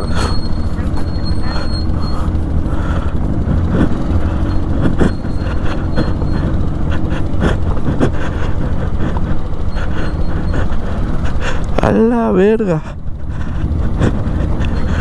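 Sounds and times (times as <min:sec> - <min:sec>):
motorcycle engine rumble: 0:00.0 - 0:15.0.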